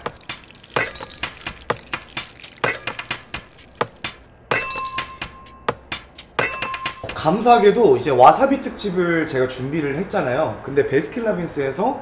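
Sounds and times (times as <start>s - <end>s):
clicks and clinks of handled items: 0.0s - 4.3s.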